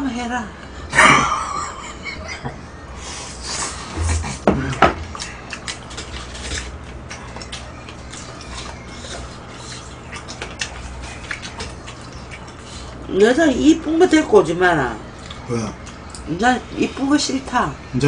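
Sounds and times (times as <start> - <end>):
chewing and lip-smacking: 3.4 - 13.1, 15.1 - 16.3.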